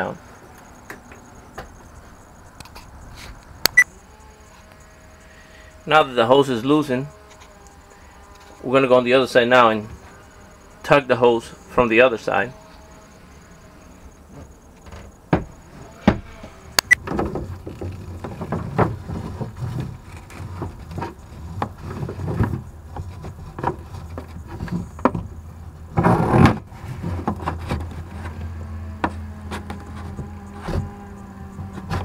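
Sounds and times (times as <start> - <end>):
plastic hose dragging and knocking: 17.0 - 25.3, 25.9 - 32.0.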